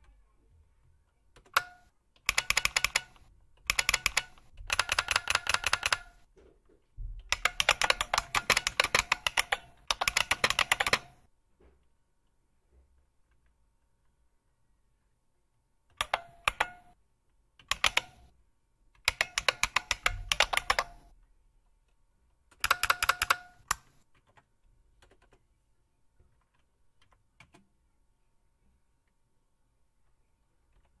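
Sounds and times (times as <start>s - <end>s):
keyboard key clicks: 19.1s - 21.0s.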